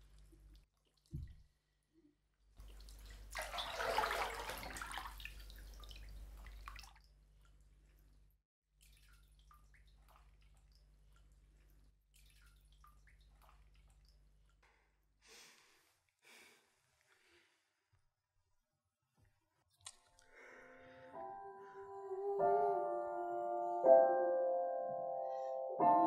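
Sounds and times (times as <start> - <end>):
water dripping: 0.0 - 1.6, 2.5 - 15.2, 19.7 - 20.3
bathwater splashing: 2.6 - 8.2, 8.8 - 14.6.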